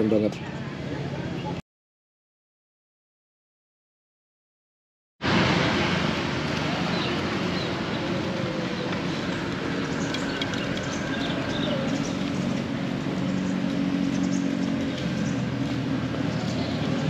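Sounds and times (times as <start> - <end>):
traffic hum: 0.0 - 1.6, 5.2 - 17.0
motorbike engine drone: 5.2 - 17.0.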